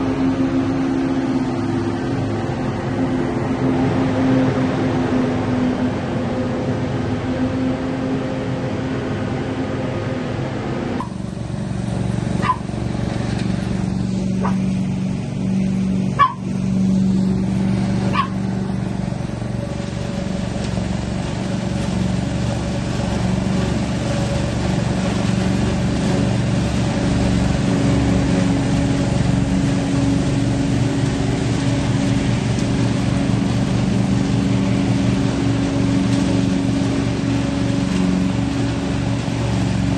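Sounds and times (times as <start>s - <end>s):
leaf vacuum engine hum: 0.0s - 39.9s
hose sucking up dry leaves: 11.0s - 39.9s
dog barking: 12.4s - 12.6s, 14.4s - 14.6s, 16.2s - 16.4s, 18.1s - 18.4s.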